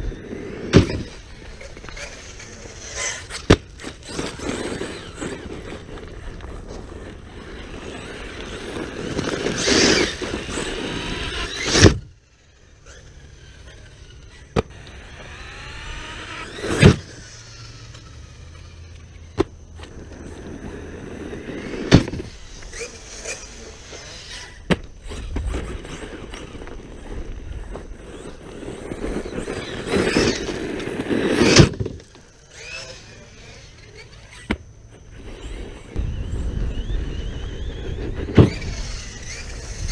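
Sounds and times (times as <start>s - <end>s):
electric motor whining: 0.0s - 39.9s
tyres churning gravel: 0.0s - 39.9s.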